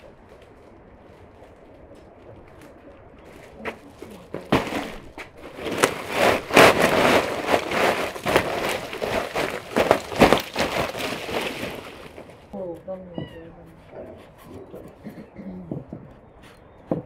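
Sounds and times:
pine cones clattering on concrete: 0.4s - 12.5s
sack and needles rustling: 3.2s - 12.6s.

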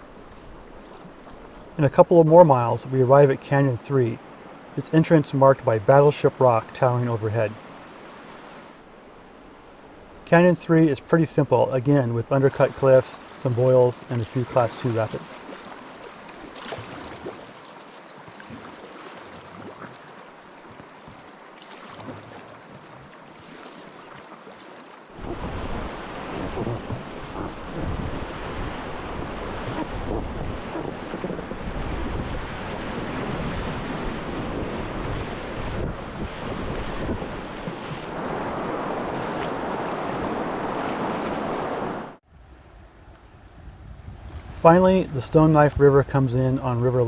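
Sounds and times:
river water rushing: 7.2s - 42.2s
wind buffeting microphone: 25.2s - 42.2s.

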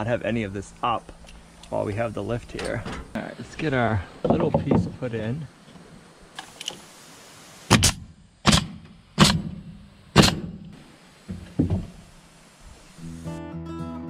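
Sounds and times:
nail gun firing into wood: 7.7s - 10.6s.

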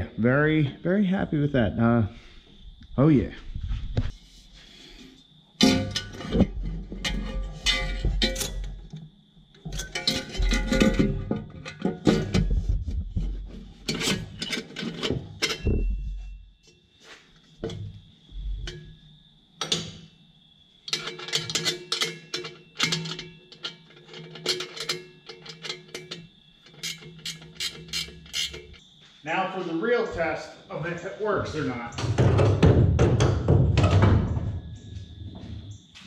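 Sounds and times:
metal clamp clinking: 13.9s - 16.0s, 20.9s - 28.8s.

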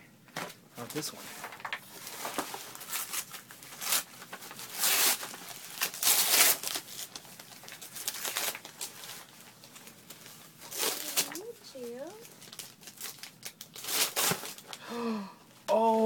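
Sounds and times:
wrapping paper tearing: 0.9s - 14.8s.

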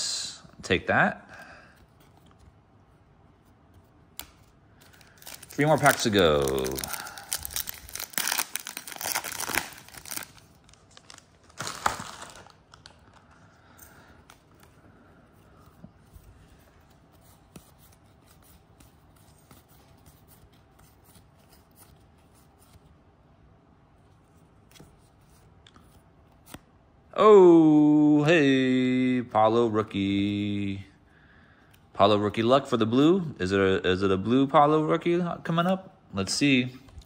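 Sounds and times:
plastic wrapper tearing and crinkling: 4.2s - 13.4s.

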